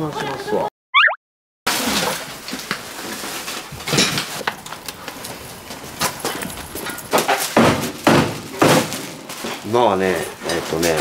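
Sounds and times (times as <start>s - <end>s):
household items knocking and clattering: 6.0s - 9.7s.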